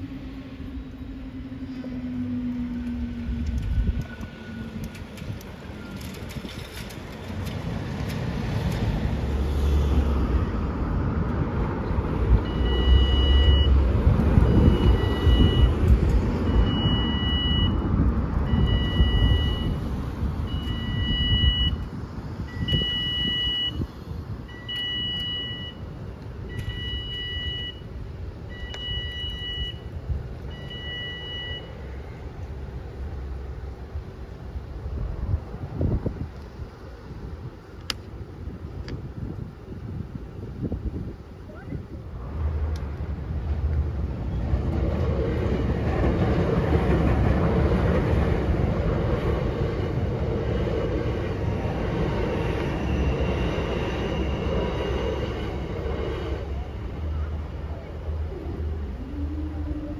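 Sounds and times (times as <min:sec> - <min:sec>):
cars driving over crossing: 0:00.0 - 0:59.9
level crossing alarm two-tone beep: 0:12.4 - 0:13.8, 0:14.5 - 0:15.8, 0:16.5 - 0:17.8, 0:18.5 - 0:19.8, 0:20.5 - 0:21.8, 0:22.5 - 0:23.8, 0:24.5 - 0:27.9, 0:28.5 - 0:29.9, 0:30.5 - 0:31.8.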